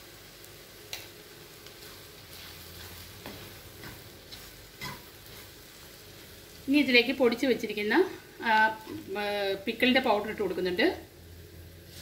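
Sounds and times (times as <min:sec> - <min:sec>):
food sizzling in hot oil: 0:00.0 - 0:12.0.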